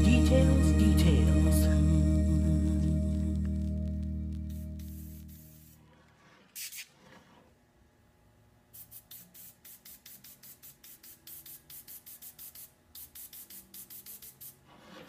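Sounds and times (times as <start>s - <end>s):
airbrush spraying in hissing bursts: 4.5s - 5.8s, 6.5s - 7.0s, 8.7s - 15.0s.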